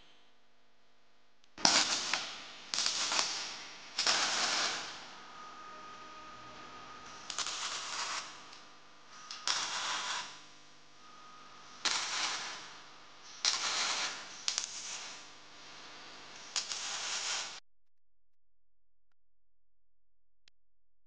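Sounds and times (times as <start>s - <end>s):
crackling welding arc: 1.6s - 17.6s.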